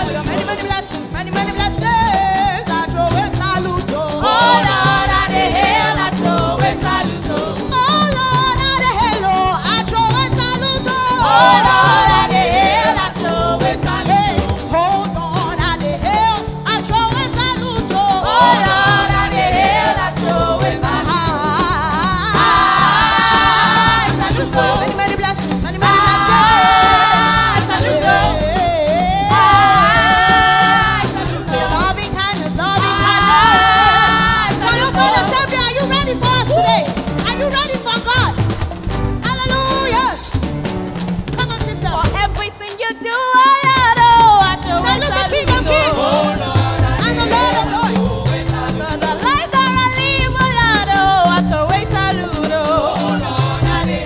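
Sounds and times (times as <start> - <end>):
vocal group singing gospel: 0.0 - 38.4, 42.6 - 54.0
instrumental backing with beat: 0.0 - 54.0.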